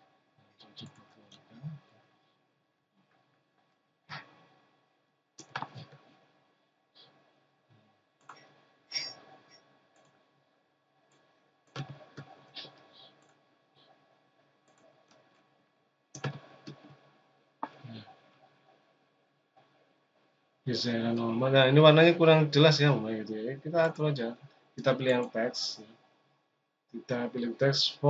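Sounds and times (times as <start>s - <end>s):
computer mouse clicks: 0.8s - 1.8s, 5.4s - 6.2s, 8.2s - 9.3s, 9.9s - 10.2s, 11.1s - 14.0s, 14.7s - 15.4s, 16.2s - 17.8s
keyboard key presses: 5.4s - 6.1s, 16.2s - 16.9s.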